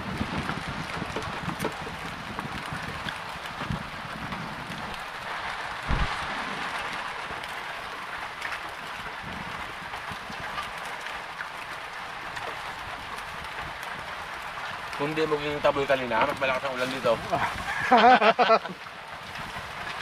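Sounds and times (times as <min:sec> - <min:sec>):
heavy rain falling: 0:00.0 - 0:20.0
low thump: 0:05.8 - 0:06.8.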